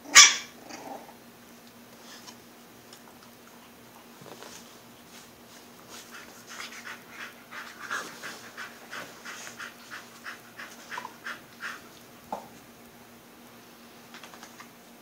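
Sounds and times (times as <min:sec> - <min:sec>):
dog panting: 0:05.9 - 0:12.1.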